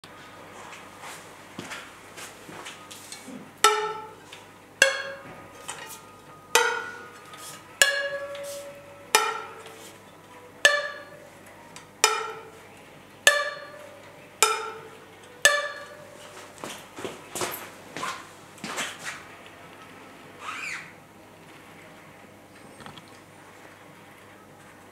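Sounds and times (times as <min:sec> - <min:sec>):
bicycle spokes twanging: 0:03.6 - 0:10.0, 0:10.6 - 0:12.6, 0:13.2 - 0:18.2.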